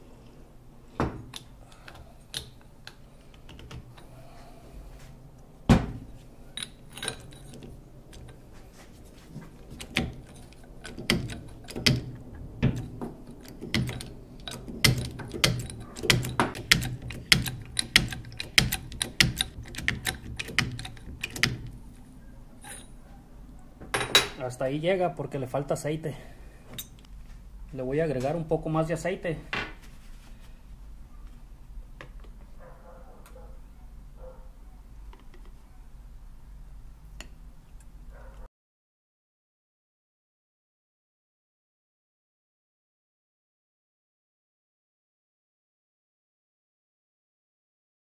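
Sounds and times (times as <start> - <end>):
jack pump metallic clicks: 9.7 - 21.8.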